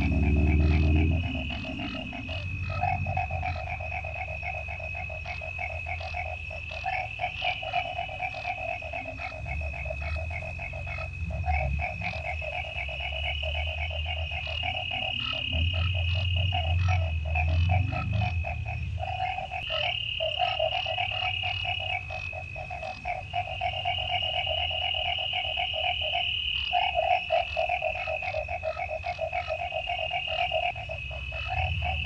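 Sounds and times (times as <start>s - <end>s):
deep low rumble: 0.0s - 6.1s, 7.9s - 19.8s, 30.7s - 32.0s
cricket trill: 0.0s - 32.0s
frogs calling in trills: 0.0s - 32.0s.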